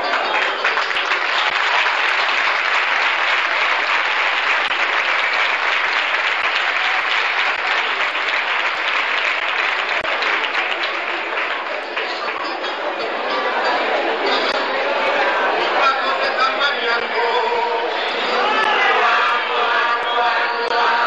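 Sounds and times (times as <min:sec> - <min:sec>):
audience applauding: 0:00.0 - 0:21.0
person singing: 0:15.1 - 0:21.0.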